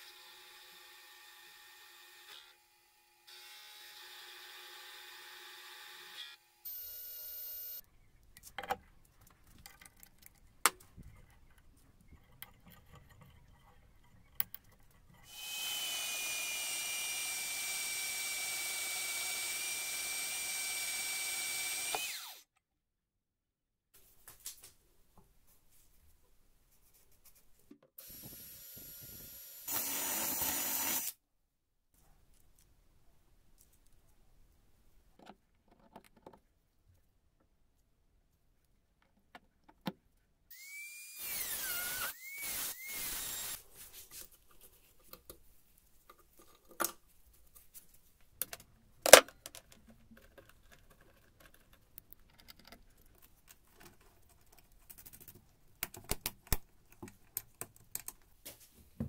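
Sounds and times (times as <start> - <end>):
rotary tool cutting metal: 15.2 - 22.4, 28.0 - 31.2, 40.5 - 43.6
electric drill boring into steel: 15.3 - 22.5, 28.0 - 31.2, 40.5 - 43.6.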